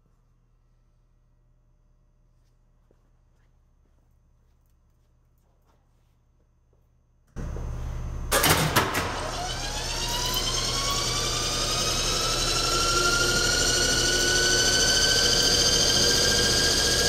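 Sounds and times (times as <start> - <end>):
steady low hum: 0.1 - 8.4
electric motor whine rising: 7.4 - 17.0.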